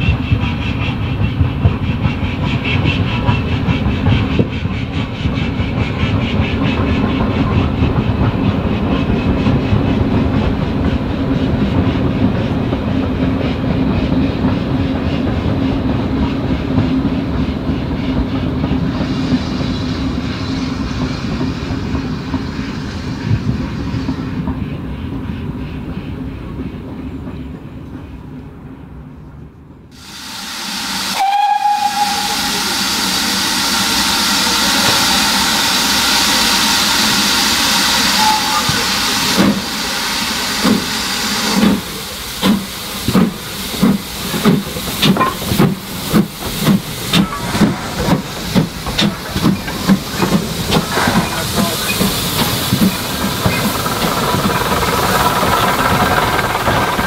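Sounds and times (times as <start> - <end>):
steam locomotive hissing: 0.0 - 26.8, 29.9 - 57.0
locomotive whistle: 30.0 - 40.3
locomotive exhaust beats: 31.2 - 57.0.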